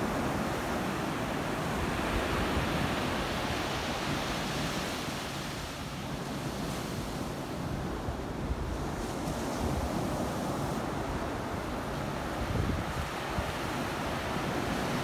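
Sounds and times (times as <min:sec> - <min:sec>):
wind buffeting microphone: 0:07.8 - 0:15.0.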